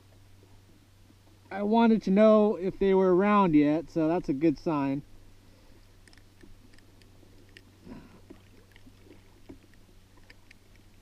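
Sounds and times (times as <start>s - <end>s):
faint clicks: 6.0s - 7.7s, 8.3s - 11.0s.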